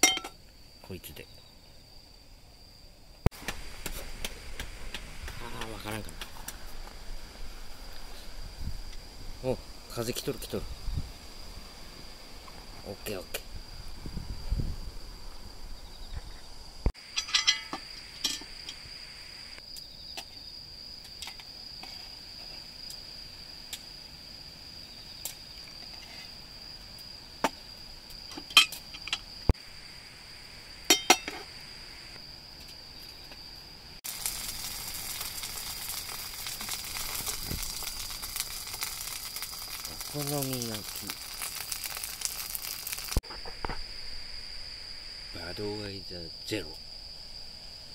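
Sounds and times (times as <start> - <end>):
metal cookware clinking: 0.0 - 0.4, 17.1 - 18.5, 30.9 - 31.4
insect chirring: 0.0 - 47.9
food sizzling in a frying pan: 34.0 - 43.3.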